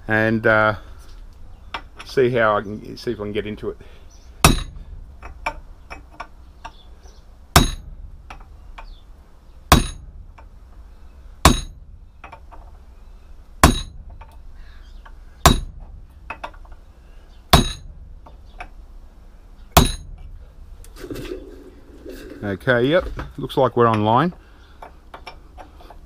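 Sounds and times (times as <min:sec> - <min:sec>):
hammer striking steel chisel: 0:04.4 - 0:05.4, 0:07.6 - 0:08.4, 0:09.7 - 0:10.0, 0:11.4 - 0:11.8, 0:13.6 - 0:14.0, 0:15.5 - 0:15.8, 0:17.6 - 0:17.9, 0:19.8 - 0:20.2.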